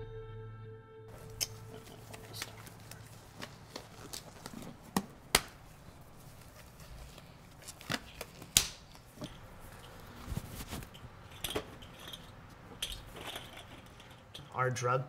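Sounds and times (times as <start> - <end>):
rubber gloves snapping on wrists: 4.9 - 5.6, 7.8 - 9.1.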